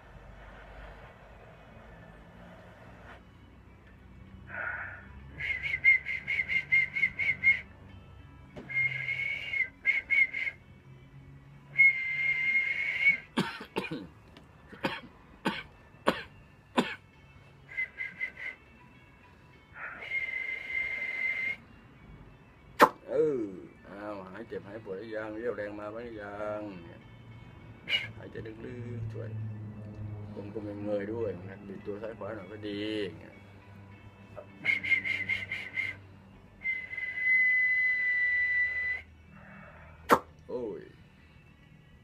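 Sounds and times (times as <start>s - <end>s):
man whistling: 4.6s - 7.8s, 8.6s - 10.6s, 11.7s - 13.4s, 17.7s - 18.8s, 19.8s - 21.7s, 27.8s - 28.2s, 34.4s - 39.2s.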